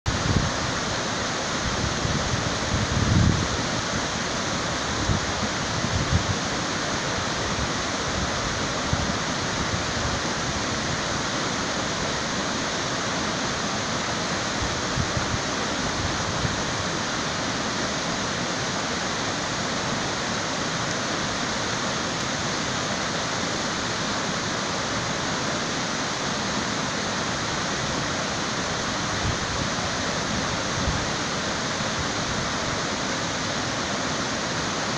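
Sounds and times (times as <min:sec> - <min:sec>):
water rushing below a dam: 0:00.1 - 0:34.9.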